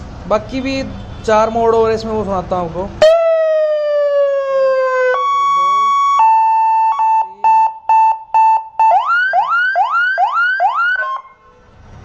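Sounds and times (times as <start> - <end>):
electronic siren changing tones: 3.0 - 11.5.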